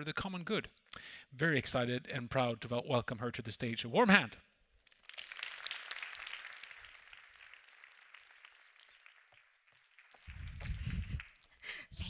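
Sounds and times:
audience applauding: 0:04.9 - 0:11.6.

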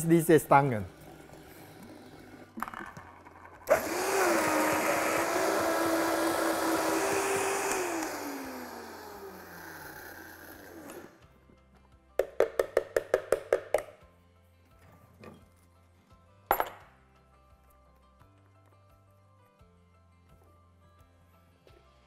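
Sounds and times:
blender motor whining: 0:03.6 - 0:11.2.

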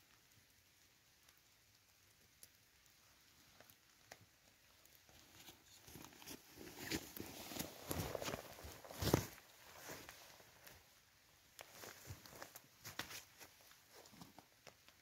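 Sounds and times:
footsteps through wet grass: 0:05.2 - 0:10.5.

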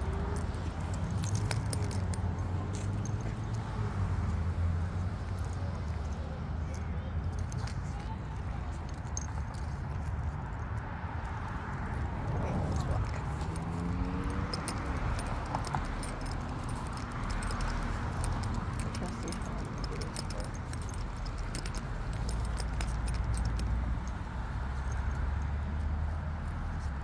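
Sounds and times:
dog tags jingling: 0:00.0 - 0:03.7, 0:07.3 - 0:10.1, 0:11.3 - 0:24.2.

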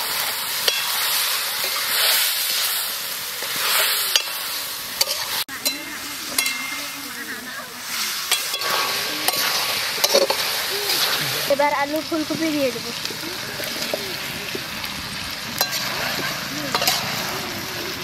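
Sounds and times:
food sizzling in hot oil: 0:00.0 - 0:18.0
metal spatula scraping: 0:00.6 - 0:11.6, 0:15.6 - 0:17.4.

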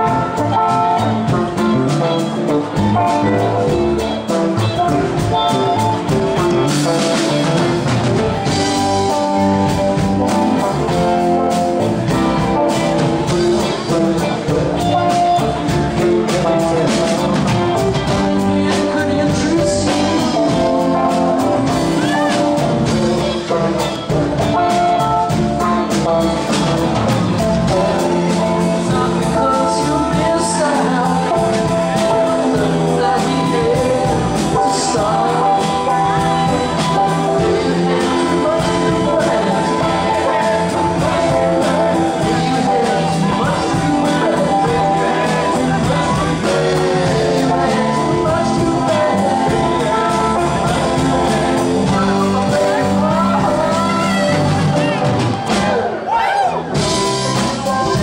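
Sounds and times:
bass guitar: 0:00.0 - 0:58.0
electric guitars: 0:00.0 - 0:58.0
man singing: 0:00.0 - 0:58.0.

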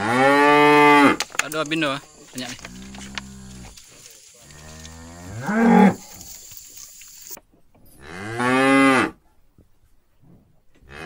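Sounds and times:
cows mooing: 0:00.0 - 0:01.2, 0:02.4 - 0:06.8, 0:08.0 - 0:09.2.

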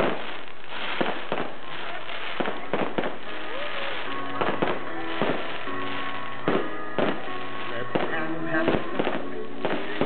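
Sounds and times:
fireworks shells bursting: 0:00.0 - 0:10.0.

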